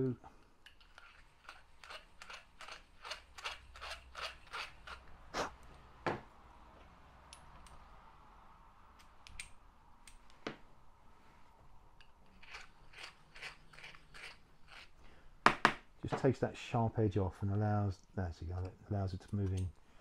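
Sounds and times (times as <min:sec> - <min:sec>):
deburring tool scraping metal: 0:00.7 - 0:05.1.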